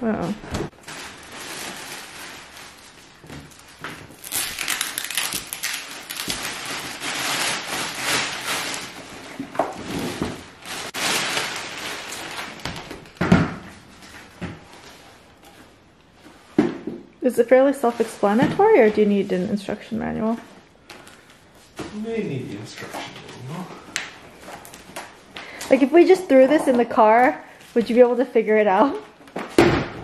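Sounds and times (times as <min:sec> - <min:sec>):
plastic wrapping crinkling: 0:00.1 - 0:15.8.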